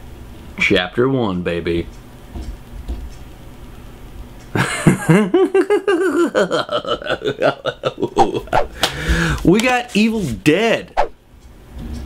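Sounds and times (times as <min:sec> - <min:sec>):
man laughing: 0:04.6 - 0:09.2.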